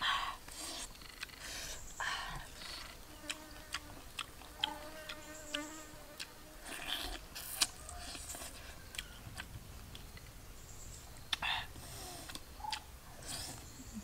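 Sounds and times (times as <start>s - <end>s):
insect buzzing: 0.5s - 9.2s
person chewing and lip-smacking: 2.6s - 9.5s.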